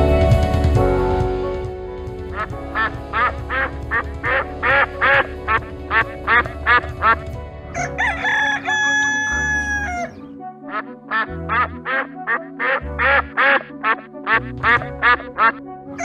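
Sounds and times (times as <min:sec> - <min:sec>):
light background music: 0:00.0 - 0:16.0
duck quacking: 0:02.4 - 0:15.6
rooster crowing: 0:07.8 - 0:10.2.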